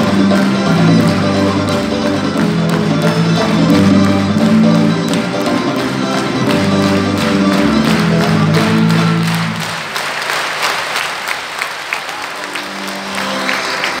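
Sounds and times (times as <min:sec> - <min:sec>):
folk band with accordions and drum: 0:00.0 - 0:09.9, 0:12.4 - 0:14.0
audience applause: 0:00.0 - 0:14.0.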